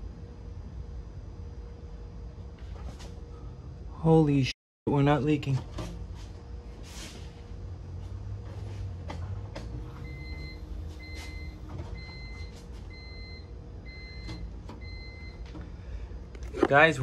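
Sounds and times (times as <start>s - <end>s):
steady low hum: 0.0s - 17.0s
electronic warning chime beeping: 10.0s - 15.4s.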